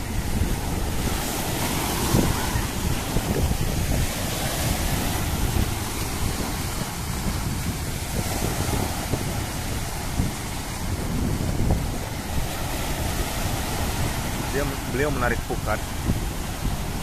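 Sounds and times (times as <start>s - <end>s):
surf breaking: 0.0s - 17.0s
wind buffeting microphone: 0.0s - 17.0s.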